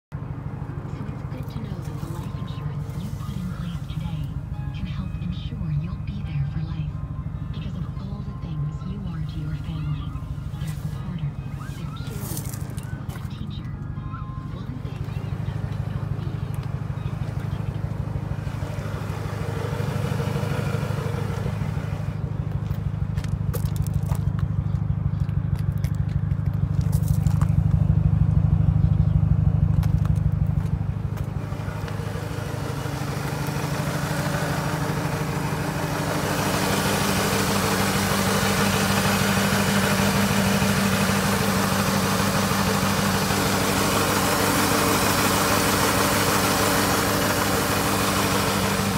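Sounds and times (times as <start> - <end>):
car engine idling: 0.0 - 48.9.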